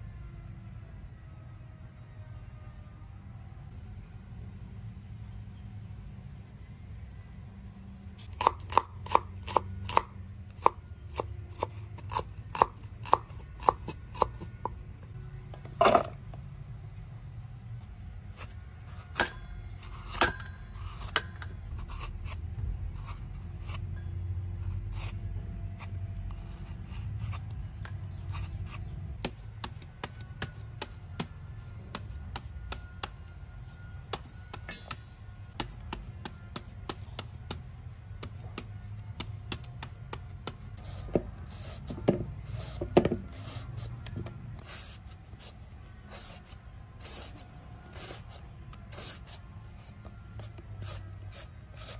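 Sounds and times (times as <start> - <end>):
knife chopping on cutting board: 8.4 - 14.8.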